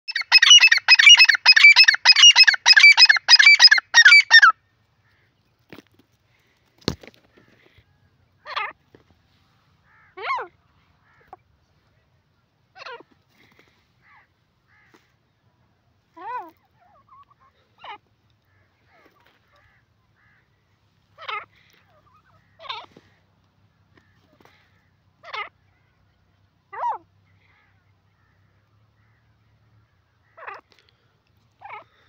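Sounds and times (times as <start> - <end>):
bird calling harsh notes: 0.1 - 4.6.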